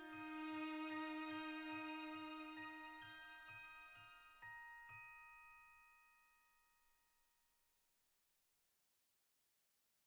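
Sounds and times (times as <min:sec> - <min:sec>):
calm instrumental music: 0:00.0 - 0:05.9.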